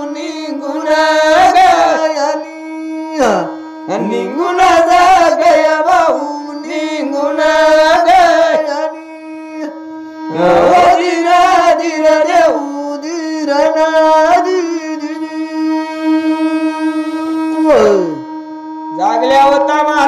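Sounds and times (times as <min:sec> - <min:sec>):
men singing a chanted song: 0:00.0 - 0:09.7, 0:10.3 - 0:18.2
instrumental drone: 0:00.0 - 0:20.0.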